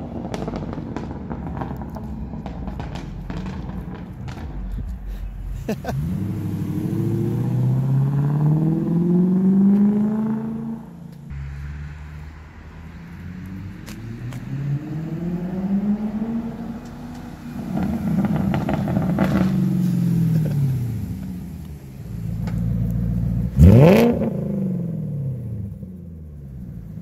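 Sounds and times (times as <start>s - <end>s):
car engine accelerating: 0.0s - 27.0s.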